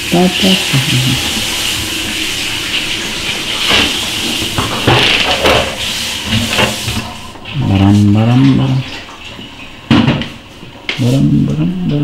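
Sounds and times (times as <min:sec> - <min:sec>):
running tap water: 0:00.0 - 0:12.0
sharp knocks and clatters: 0:03.6 - 0:07.0.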